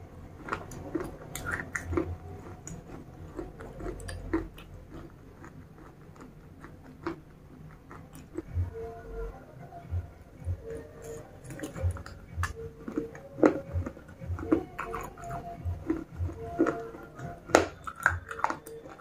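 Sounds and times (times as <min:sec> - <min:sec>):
chewing slate pieces: 0:00.4 - 0:08.5, 0:11.0 - 0:19.0.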